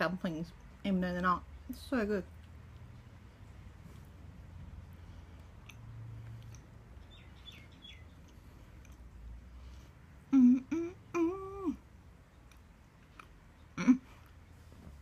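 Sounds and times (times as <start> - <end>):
woman chewing: 2.3 - 10.8
woman humming mmm: 10.3 - 11.8, 13.8 - 14.3.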